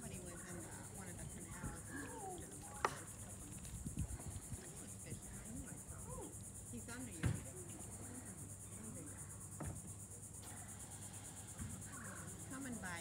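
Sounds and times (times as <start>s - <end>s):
insect chorus: 0.0s - 13.0s.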